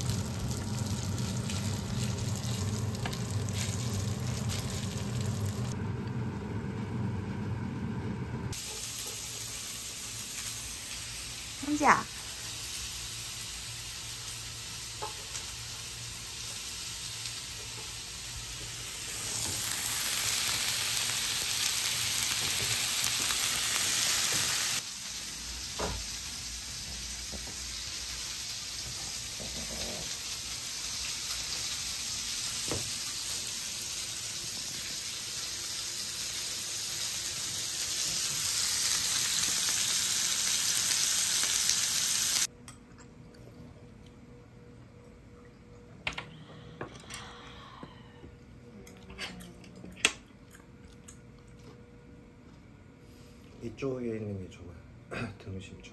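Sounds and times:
food sizzling in a pan: 0.0 - 5.8, 8.5 - 42.5.

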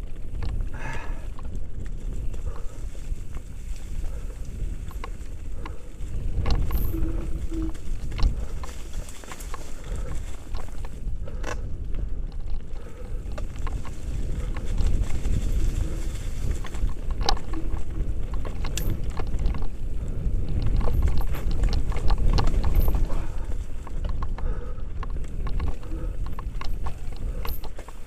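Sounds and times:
bike clicks and knocks: 0.0 - 28.0
wind rumble on microphone: 0.0 - 28.0
tyres rattling over stones: 12.3 - 19.8, 20.5 - 24.3, 25.0 - 28.0.

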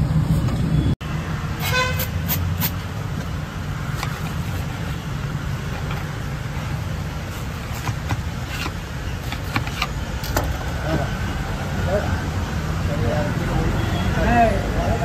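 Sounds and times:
low traffic rumble: 0.0 - 15.0
vehicle horn toot: 1.6 - 2.2.

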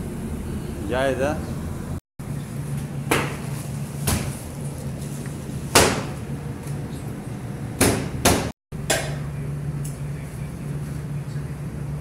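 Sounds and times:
steady low hum: 0.0 - 12.0
sharp knocks: 5.7 - 6.2, 7.8 - 9.2.

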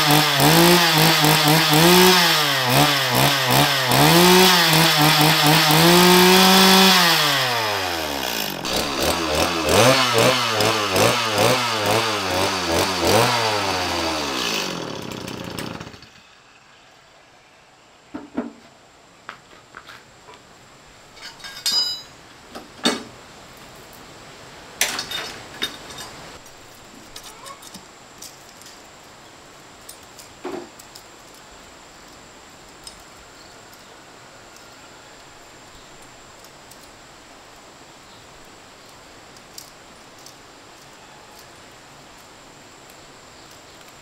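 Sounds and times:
faint hiss: 16.1 - 44.0
light metallic clinks: 21.2 - 22.2.

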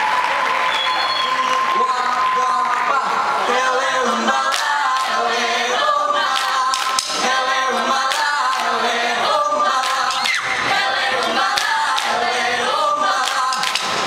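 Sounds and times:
young voices singing together: 1.8 - 14.0
hand claps and slaps: 6.3 - 7.2, 11.5 - 12.2, 13.2 - 14.0.

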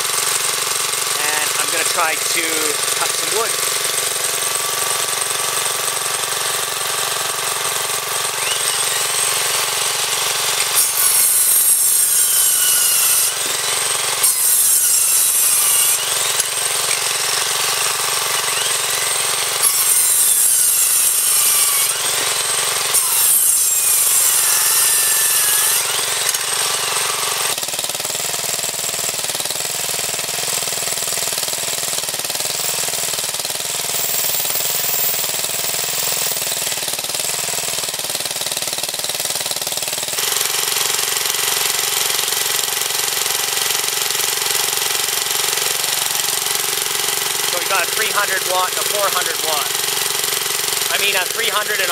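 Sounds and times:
circular saw cutting wood: 0.0 - 27.6, 33.9 - 36.8, 39.3 - 51.9
engine-driven alternator running: 43.7 - 51.9.

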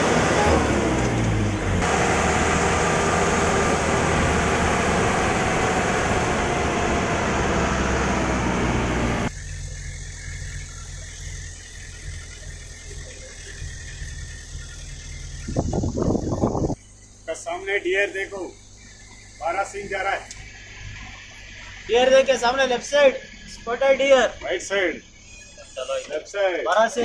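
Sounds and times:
bus engine and road noise: 0.0 - 16.8.

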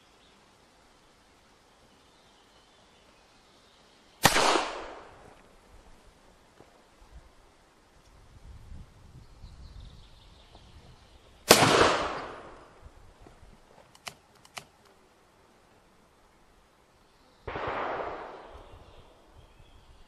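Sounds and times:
light clicks: 13.8 - 15.0.

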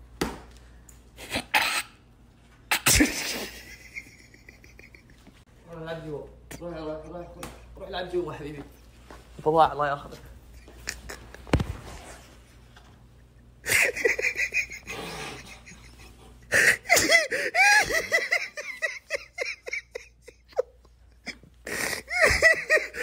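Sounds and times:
young man laughing with wheezing: 2.7 - 5.4, 10.5 - 12.4, 13.1 - 23.0.

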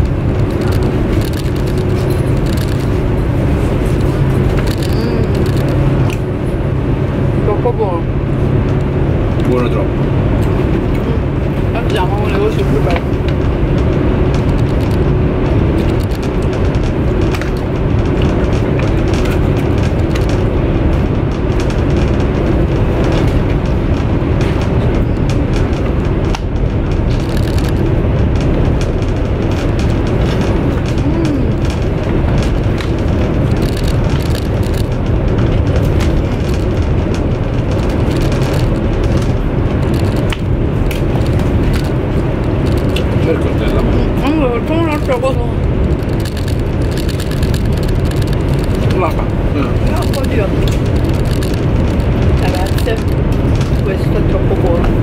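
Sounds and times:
train carriage rumble: 0.0 - 55.0
small clicks: 4.0 - 6.2, 45.9 - 49.0, 49.8 - 53.8.

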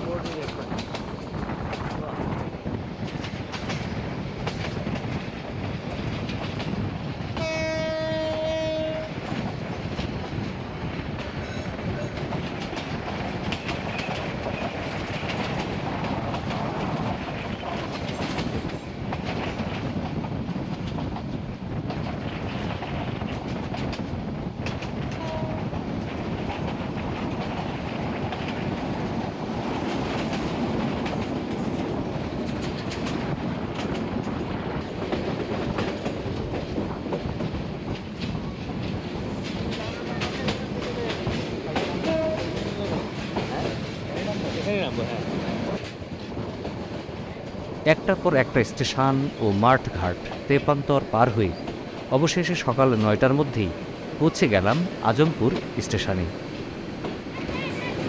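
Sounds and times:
train wheels clattering over rails: 0.0 - 58.0
train horn: 7.4 - 9.2, 25.2 - 25.8, 42.0 - 42.6.

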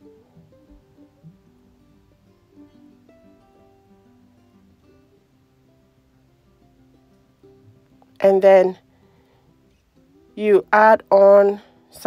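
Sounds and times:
plucked guitar melody: 0.0 - 12.0.

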